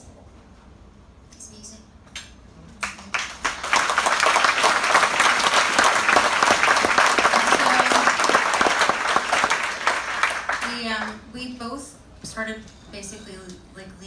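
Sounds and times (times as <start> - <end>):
audience applauding: 2.8 - 11.2.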